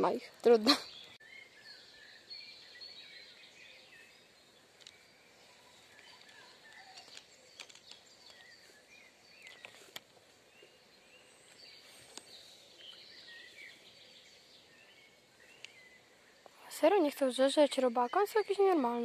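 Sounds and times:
birds chirping: 0.0 - 19.0
sharp clicks: 5.9 - 8.4.

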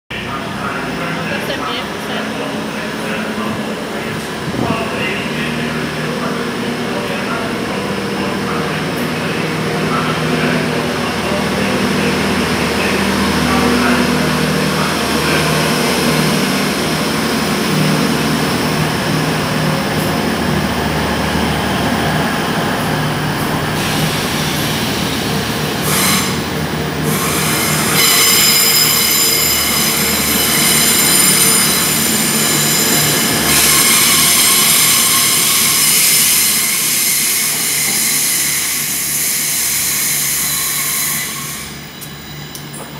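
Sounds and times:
diesel train engines humming: 0.1 - 42.9
high-pitched squeal: 23.6 - 42.6.

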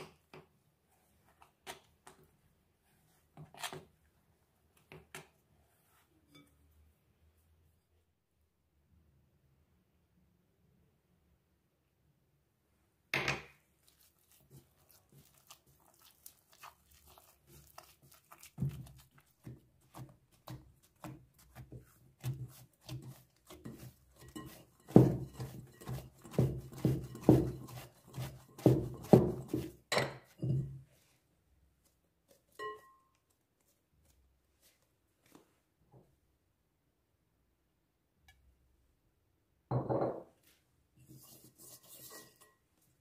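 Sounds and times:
dough kneaded by hand: 13.6 - 36.2
glass bowl clunking on counter: 39.7 - 40.3.

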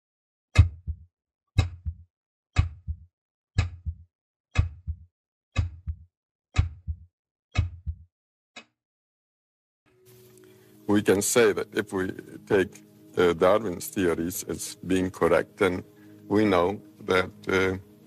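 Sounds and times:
low thuds: 3.6 - 4.0, 4.6 - 5.0.

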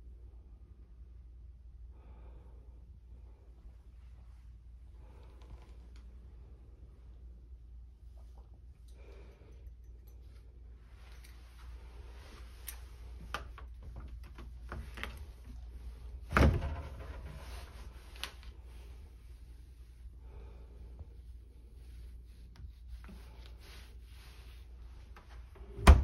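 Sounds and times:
fridge door opening: 16.3 - 17.5, 25.6 - 26.0.

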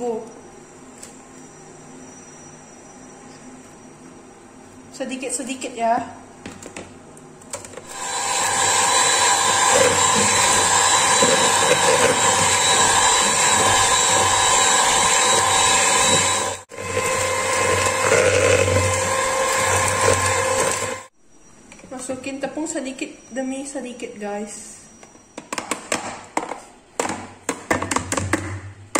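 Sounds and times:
electric hand mixer whining: 7.8 - 21.1.

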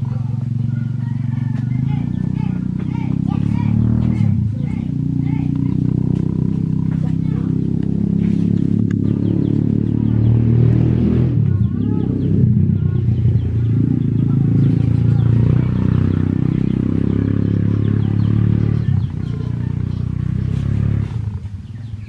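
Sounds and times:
loud low motor drone: 0.0 - 22.0
faint voice-like sounds: 11.3 - 22.0.

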